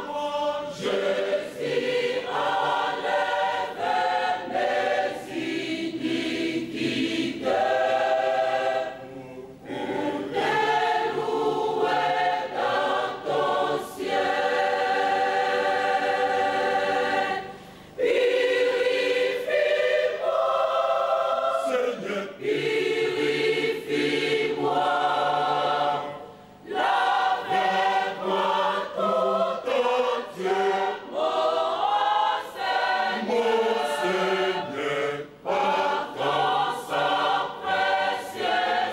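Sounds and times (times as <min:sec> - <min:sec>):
choir singing a hymn: 0:00.0 - 0:38.9.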